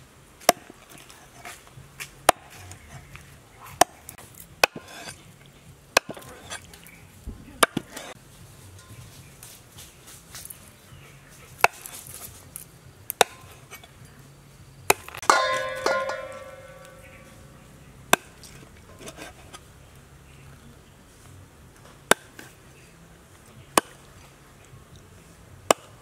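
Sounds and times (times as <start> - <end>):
cleaver chopping on wooden board: 2.2 - 3.1, 3.8 - 5.2, 6.0 - 6.6, 13.1 - 13.8, 14.9 - 17.3, 18.1 - 19.4, 22.1 - 22.5, 23.7 - 24.0, 25.7 - 26.0
metallic clang and ring: 15.2 - 17.5.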